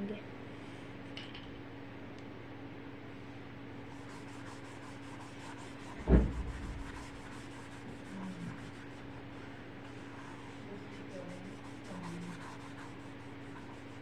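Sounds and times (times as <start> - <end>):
low steady hum: 0.0 - 14.0
brush rubbing paint on paper: 3.9 - 14.0
dull thump: 6.0 - 6.7.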